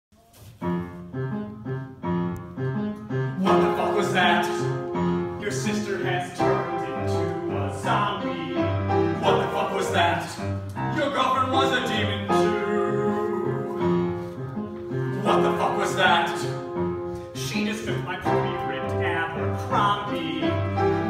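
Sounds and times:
piano chords: 0:00.5 - 0:21.0
person singing long notes: 0:03.0 - 0:09.8, 0:11.9 - 0:14.3.

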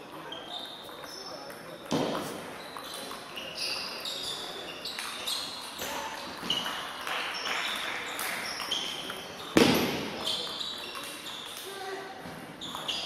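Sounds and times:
table tennis balls clicking: 0:04.9 - 0:11.7.

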